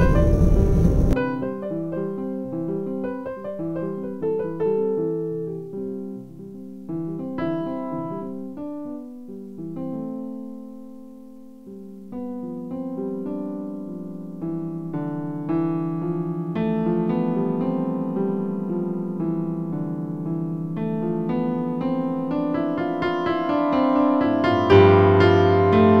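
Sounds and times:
deep piano chord: 0:00.0 - 0:26.0
piano notes ringing: 0:00.0 - 0:26.0.

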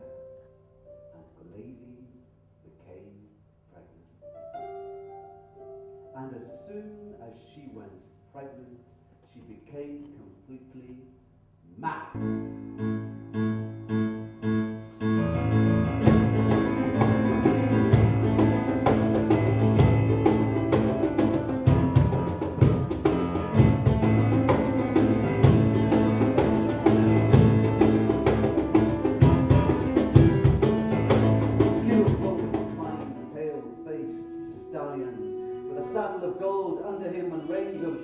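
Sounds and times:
instrumental music with fast beat: 0:15.1 - 0:33.4.

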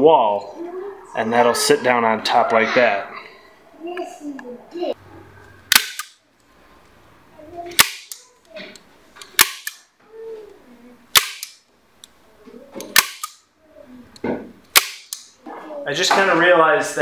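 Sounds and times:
staple gun snapping: 0:05.7 - 0:06.2, 0:09.2 - 0:09.8, 0:11.1 - 0:11.6, 0:12.8 - 0:13.4, 0:14.7 - 0:15.3.

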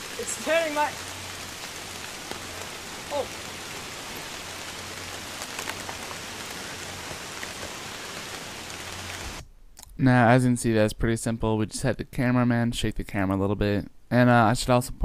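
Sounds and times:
steady rushing background noise: 0:00.0 - 0:09.4.

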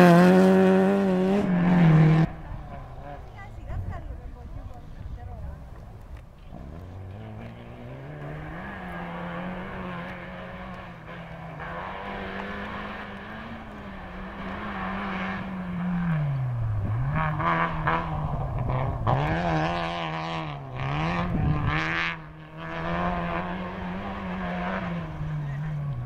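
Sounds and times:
rally car engine revving: 0:00.0 - 0:03.6, 0:06.4 - 0:26.0
gravel rattling off tyres: 0:01.8 - 0:26.0.

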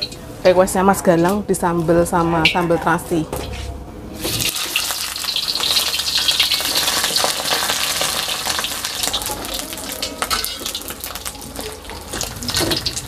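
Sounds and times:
fish frying in hot oil: 0:04.2 - 0:13.0.

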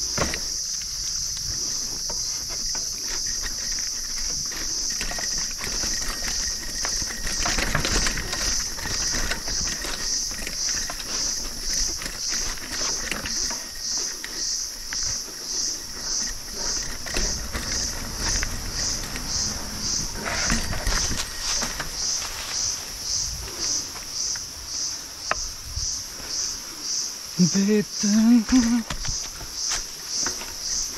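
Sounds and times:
bike rattling over stone trail: 0:00.0 - 0:30.9
insect calling in high pulses: 0:18.6 - 0:30.9.

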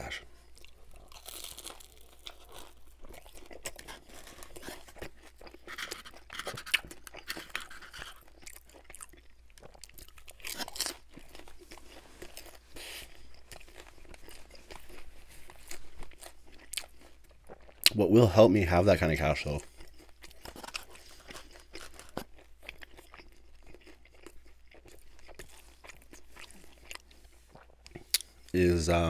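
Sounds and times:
crunching and chewing food: 0:00.0 - 0:29.0.

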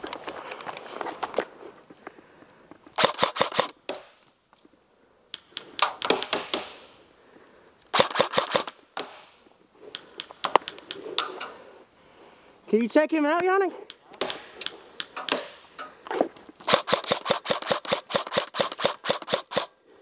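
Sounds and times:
airsoft rifles firing bursts: 0:03.0 - 0:03.7, 0:07.9 - 0:09.3, 0:16.6 - 0:19.8.

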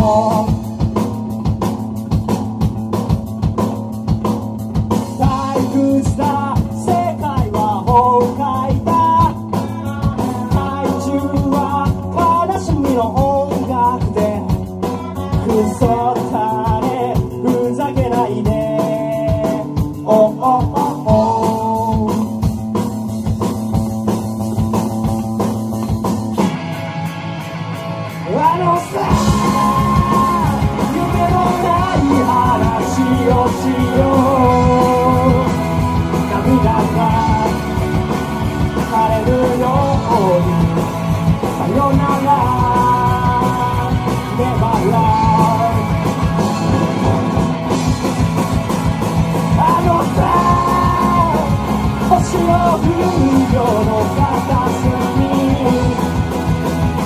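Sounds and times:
person singing: 0:00.0 - 0:00.8, 0:05.2 - 0:22.4, 0:28.2 - 0:47.0, 0:49.4 - 0:56.4
rock band playing: 0:00.0 - 0:57.0.

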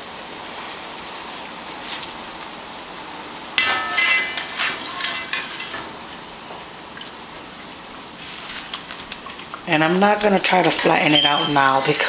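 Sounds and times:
plantain slices sizzling in oil: 0:00.0 - 0:12.0
utensil clinking against pan: 0:03.6 - 0:05.9.

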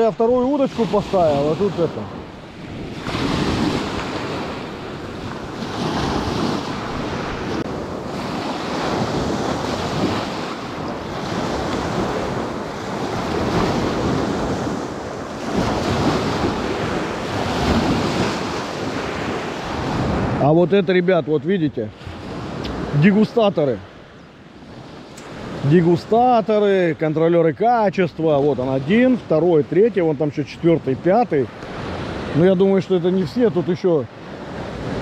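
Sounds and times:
gusty wind on microphone: 0:00.0 - 0:20.6
lake waves washing ashore: 0:00.0 - 0:35.0.

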